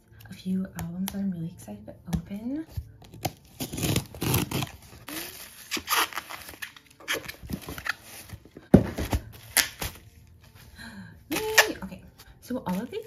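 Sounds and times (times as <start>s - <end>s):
bubble wrap crinkling: 3.2s - 10.6s, 11.3s - 13.0s.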